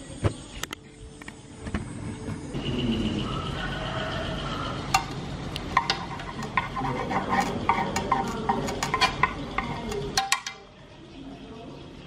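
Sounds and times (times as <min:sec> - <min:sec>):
chopsticks tapping in metal pan: 0:04.9 - 0:10.7.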